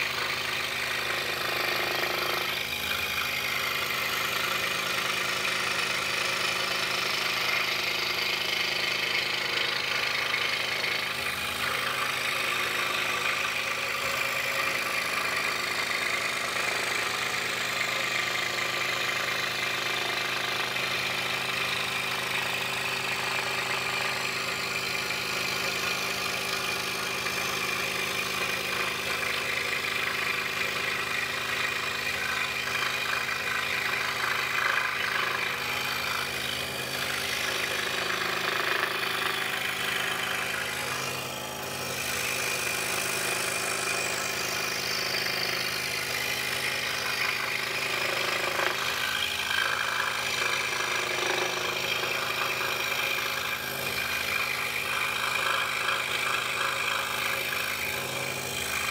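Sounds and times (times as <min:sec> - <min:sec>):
scroll saw cutting wood: 0:00.0 - 0:58.9.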